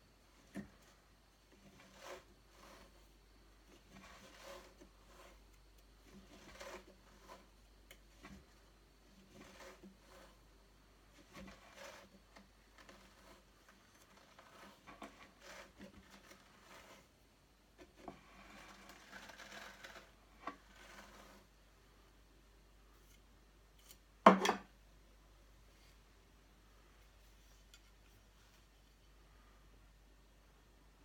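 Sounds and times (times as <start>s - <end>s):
fibres scratching on carder drums: 0.3s - 21.6s.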